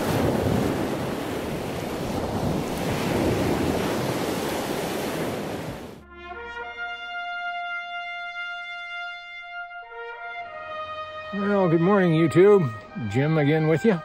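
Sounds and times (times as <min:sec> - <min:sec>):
surf washing onto beach: 0:00.0 - 0:06.0
wind buffeting microphone: 0:00.0 - 0:06.0
brass music: 0:06.0 - 0:14.0.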